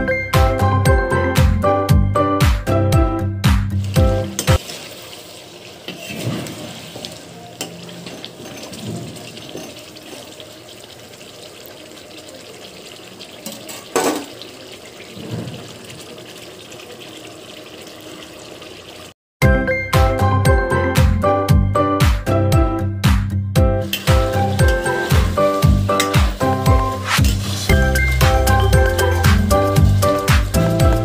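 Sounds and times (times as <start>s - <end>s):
gravy bubbling in a pot: 4.6s - 19.2s
spoon scraping a pot: 5.9s - 6.6s, 26.9s - 27.8s.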